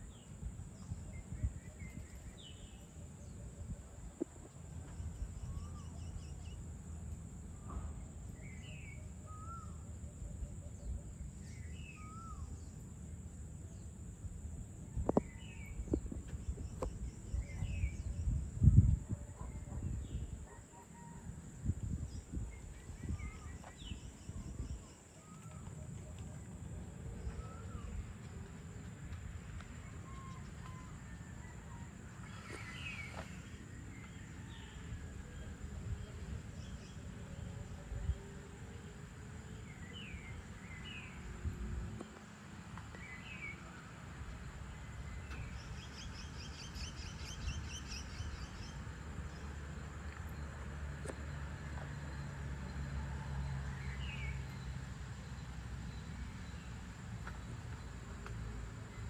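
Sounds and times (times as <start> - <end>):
steady low rumble: 0.0 - 20.5.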